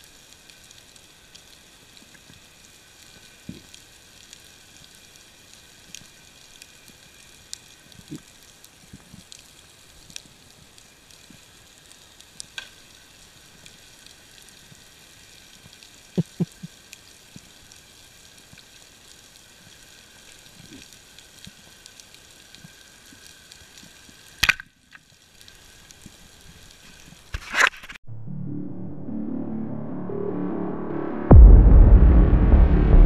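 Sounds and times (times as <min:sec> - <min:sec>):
underwater crackle and hiss: 0:00.0 - 0:28.0.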